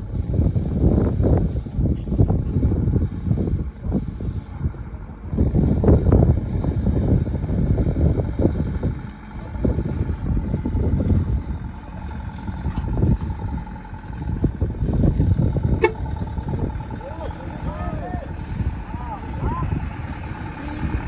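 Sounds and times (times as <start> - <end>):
truck engine rumble: 0.0 - 21.0
long horn tone: 15.5 - 21.0.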